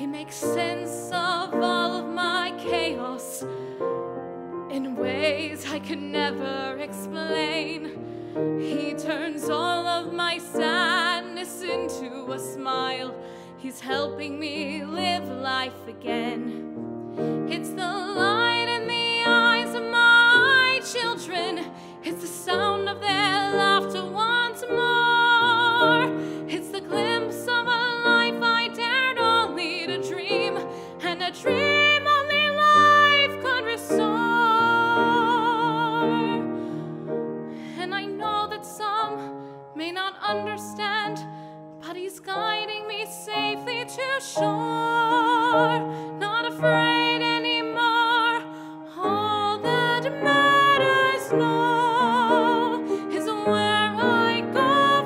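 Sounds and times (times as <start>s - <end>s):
grand piano accompaniment: 0.0s - 55.0s
person singing with vibrato: 17.4s - 36.9s, 41.9s - 55.0s.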